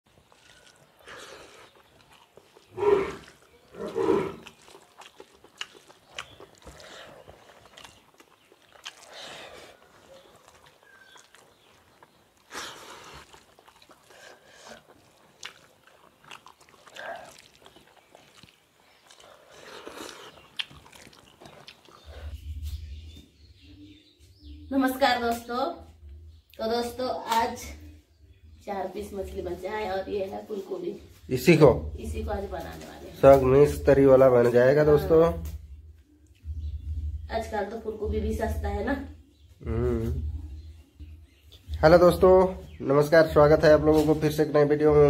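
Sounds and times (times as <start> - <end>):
chewing and mouth noises: 0.1 - 23.7, 35.4 - 37.2.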